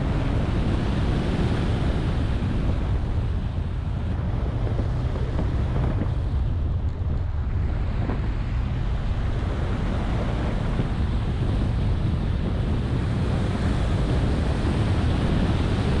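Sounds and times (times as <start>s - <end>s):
wind on microphone: 0.0s - 16.0s.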